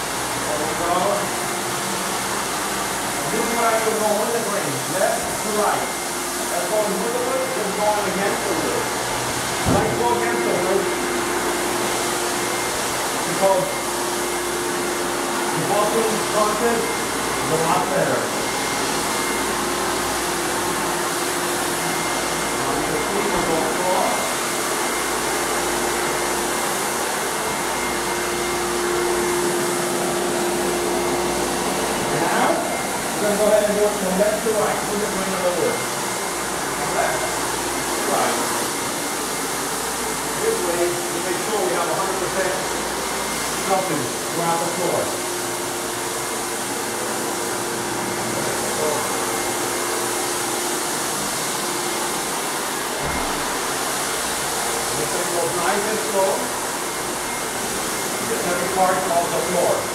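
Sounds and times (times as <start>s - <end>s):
floor buffer and vacuum motor whir: 0.0s - 59.9s
low thump: 53.0s - 53.4s.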